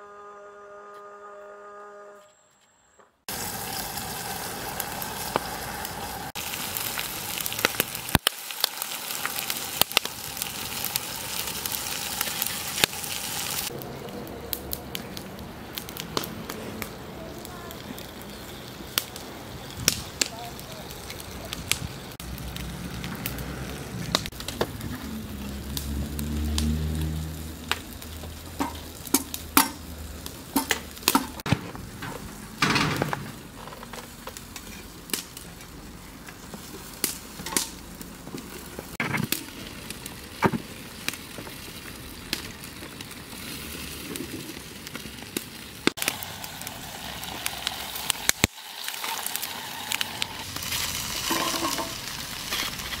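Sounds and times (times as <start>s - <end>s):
food sizzling: 3.3s - 53.0s.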